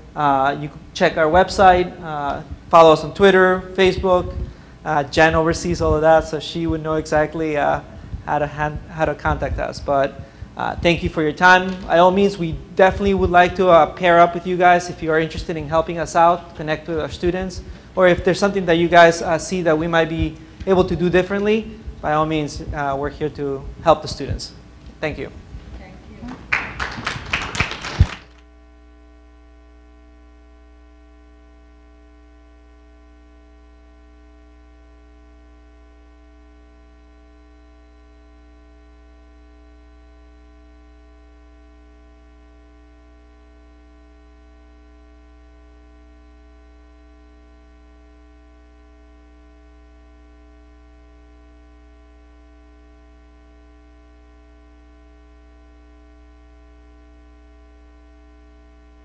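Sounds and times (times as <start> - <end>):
steady electrical hum: 0.0 - 59.0.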